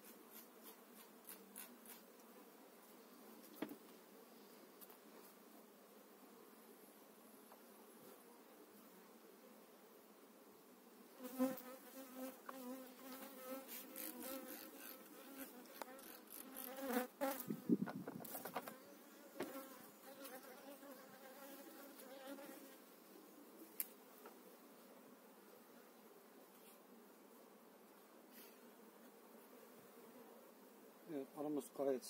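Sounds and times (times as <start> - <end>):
honey bee buzzing: 11.1 - 23.0.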